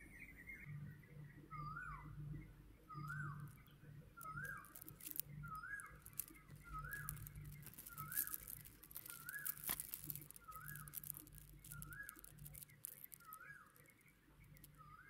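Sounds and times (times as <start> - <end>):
bead bracelet clicking: 4.2 - 14.8.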